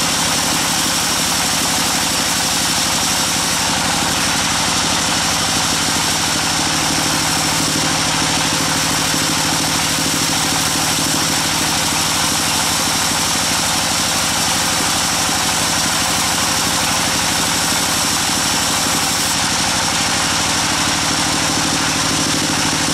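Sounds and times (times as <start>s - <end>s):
band sawmill droning: 0.0s - 22.9s.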